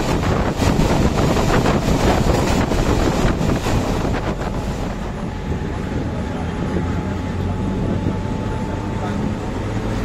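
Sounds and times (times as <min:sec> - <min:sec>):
train wheels rumbling on rails: 0:00.0 - 0:10.0
wind buffeting microphone: 0:00.0 - 0:10.0.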